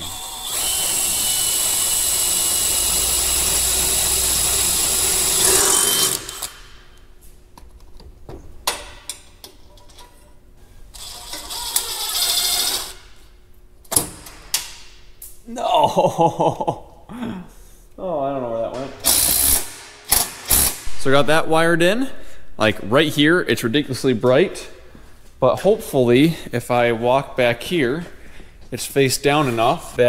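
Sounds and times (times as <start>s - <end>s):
power drill whine: 0.0s - 6.6s.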